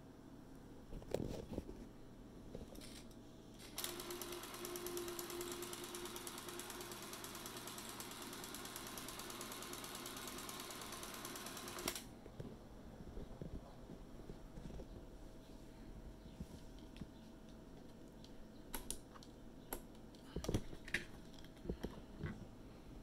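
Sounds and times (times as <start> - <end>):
film camera whirring: 2.8 - 12.1.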